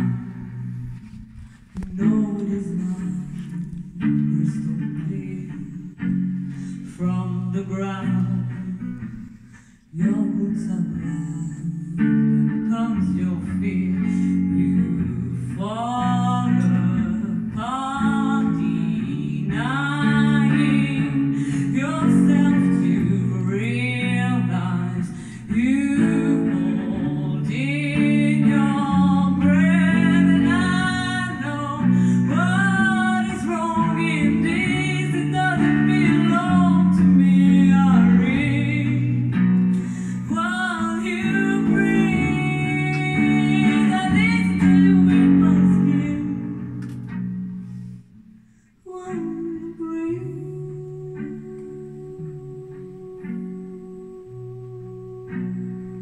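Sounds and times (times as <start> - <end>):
woman singing: 0.0 - 47.1, 48.8 - 56.0
electric guitar chords: 3.8 - 48.5.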